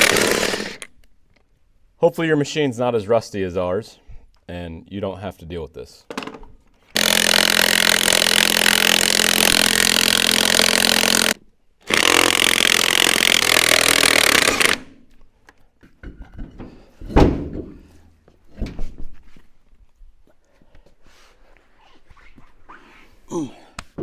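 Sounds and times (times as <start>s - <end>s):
impact wrench hammering: 7.0s - 14.8s.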